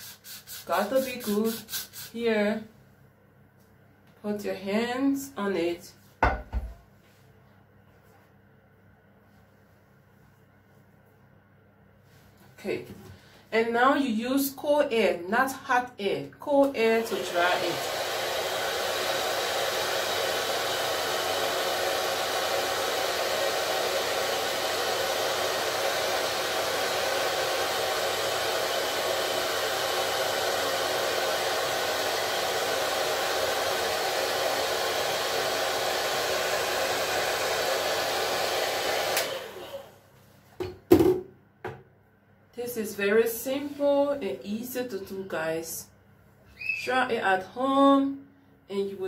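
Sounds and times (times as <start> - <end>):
hair dryer running: 0.0 - 2.2, 16.7 - 40.0.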